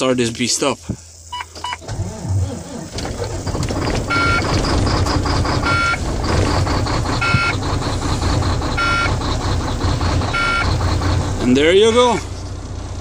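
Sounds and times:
diesel truck engine running: 0:01.1 - 0:13.0
dashboard warning beeps: 0:01.3 - 0:01.8, 0:04.0 - 0:06.0, 0:07.2 - 0:07.6, 0:08.8 - 0:09.2, 0:10.3 - 0:10.8.

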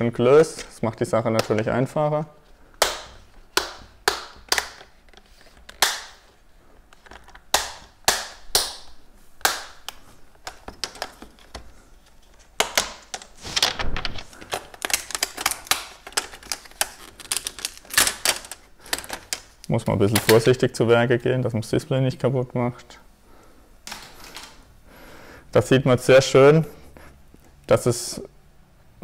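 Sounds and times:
plastic clips clicking loose: 0:02.8 - 0:06.1, 0:14.3 - 0:20.5.

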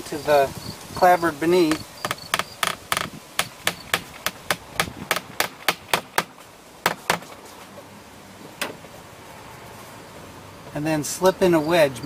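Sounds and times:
hammer tapping nail into wood: 0:01.7 - 0:06.3.

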